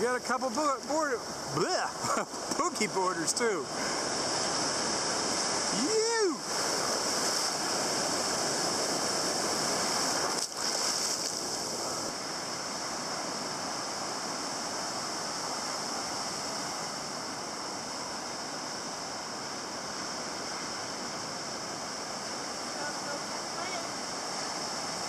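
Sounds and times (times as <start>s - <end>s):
ocean surf breaking: 0.0s - 25.0s.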